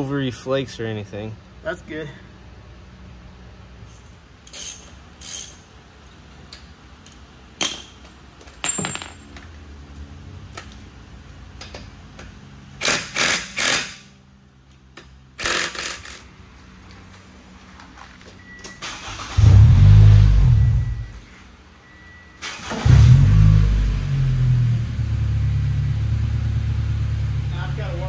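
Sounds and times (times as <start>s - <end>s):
metal tools clattering: 8.5s - 9.5s
power tool bursts: 15.4s - 16.2s.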